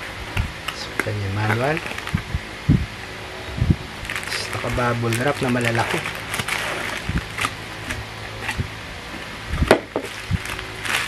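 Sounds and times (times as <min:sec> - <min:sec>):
bubble wrap crinkling: 0:00.6 - 0:02.3, 0:04.0 - 0:08.7, 0:09.6 - 0:11.0.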